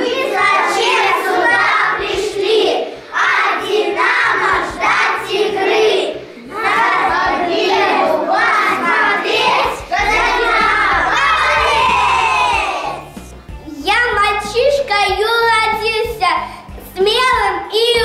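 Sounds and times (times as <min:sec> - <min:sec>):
children chanting in unison: 0:00.0 - 0:13.2
backing music: 0:00.0 - 0:18.0.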